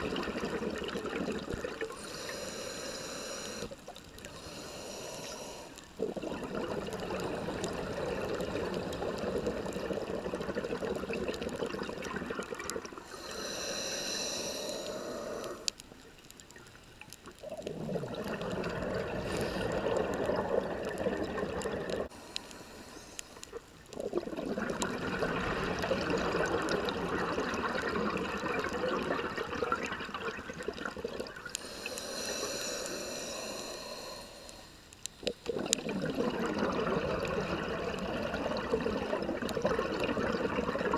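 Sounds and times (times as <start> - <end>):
underwater bubbling exhaust: 0.0 - 40.9
high hissing inhalations: 2.0 - 5.8, 13.0 - 15.7, 22.1 - 23.6, 31.5 - 34.9.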